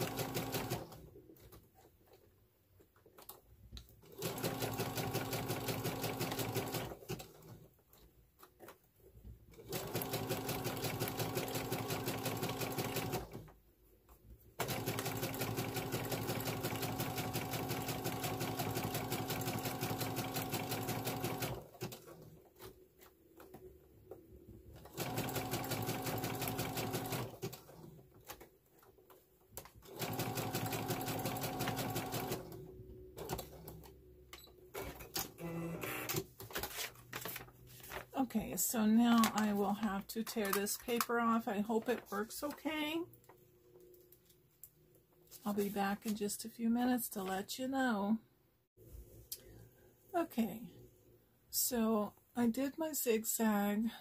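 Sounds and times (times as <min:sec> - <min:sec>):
sewing machine stitching: 0:00.0 - 0:01.1, 0:04.0 - 0:07.6, 0:09.6 - 0:13.5, 0:14.6 - 0:22.2, 0:24.8 - 0:28.0, 0:29.8 - 0:33.9.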